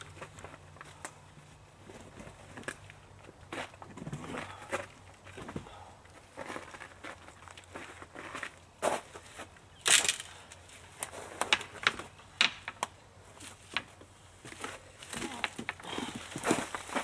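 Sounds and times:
twigs snapping and rustling: 0:09.8 - 0:13.0.

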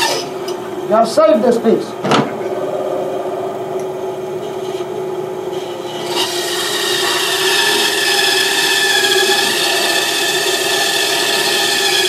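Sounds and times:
bandsaw humming: 0:00.0 - 0:00.6, 0:02.3 - 0:12.0
saw blade rasping through wood: 0:05.5 - 0:12.0.

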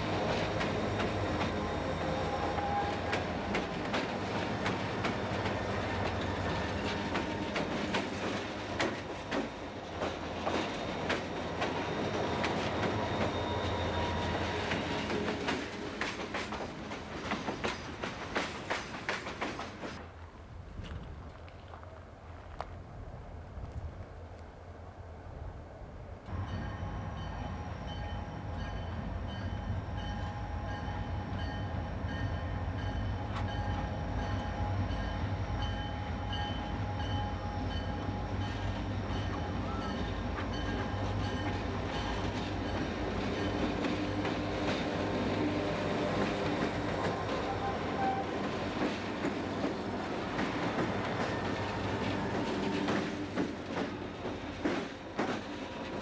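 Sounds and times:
train wheels clicking over rail joints: 0:00.0 - 0:20.0, 0:38.4 - 0:56.0
diesel locomotives rumbling: 0:00.0 - 0:20.3, 0:21.2 - 0:56.0.

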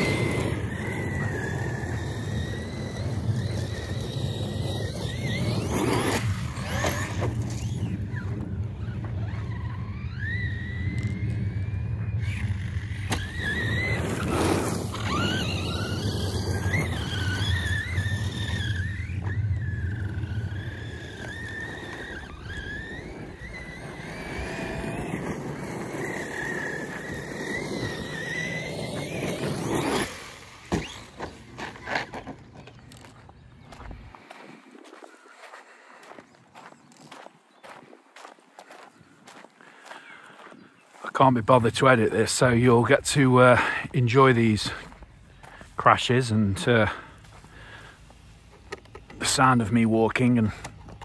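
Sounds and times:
tyres rushing on ground: 0:00.0 - 0:33.5, 0:41.0 - 0:51.0
electric motor whining: 0:00.0 - 0:33.9.

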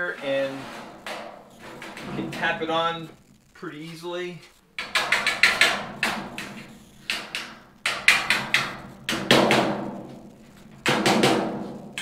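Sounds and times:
hammer tapping sheet metal: 0:00.6 - 0:02.8, 0:04.8 - 0:12.0.

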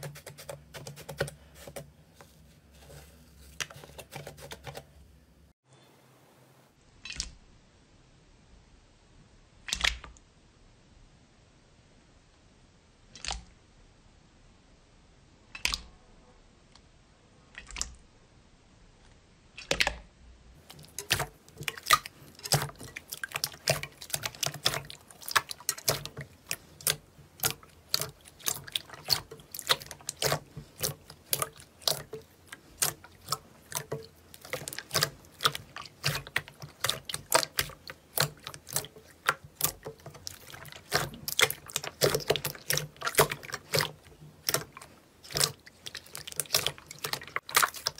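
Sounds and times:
slime squelching: 0:00.0 - 0:05.1, 0:20.6 - 0:47.9.

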